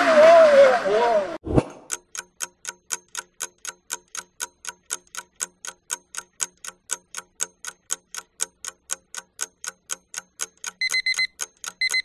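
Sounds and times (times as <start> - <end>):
clock ticking: 1.8 - 12.0.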